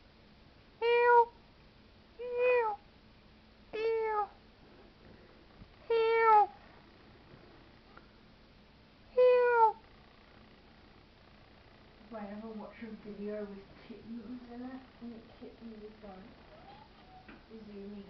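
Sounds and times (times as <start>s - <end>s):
cat meowing: 0.8s - 1.3s, 2.2s - 2.8s, 3.8s - 4.4s, 5.8s - 6.6s, 9.1s - 9.8s, 16.4s - 17.4s.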